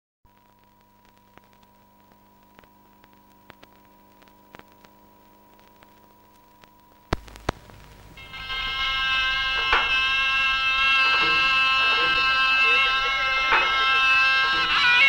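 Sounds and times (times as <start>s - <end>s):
film soundtrack hum and hiss: 0.3s - 15.0s
film clicks and crackles: 0.4s - 14.8s.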